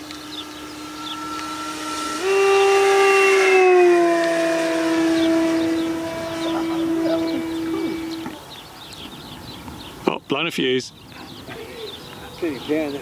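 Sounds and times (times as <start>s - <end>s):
model plane motor droning: 0.0s - 8.4s.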